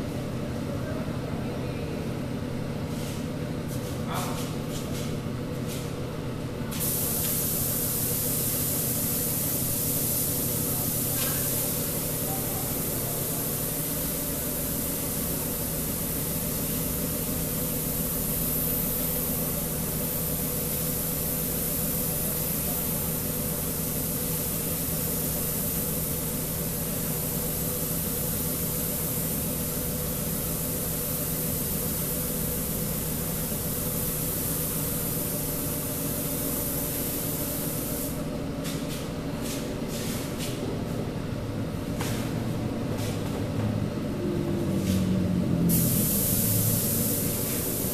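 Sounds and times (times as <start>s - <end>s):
paint spray gun hissing: 6.8s - 38.3s, 45.7s - 47.9s
low machine hum: 7.6s - 47.9s.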